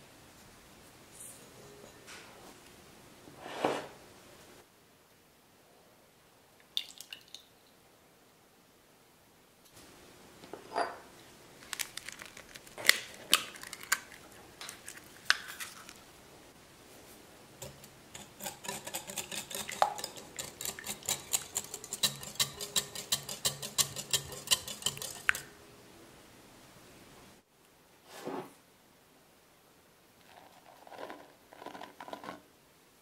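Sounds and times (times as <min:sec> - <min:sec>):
glass clinks and taps: 0:10.7 - 0:11.0
whisk beating in glass bowl: 0:17.6 - 0:25.5.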